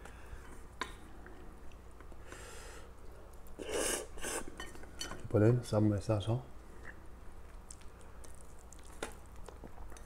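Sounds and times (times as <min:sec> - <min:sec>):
person slurping noodles: 0:03.6 - 0:04.5.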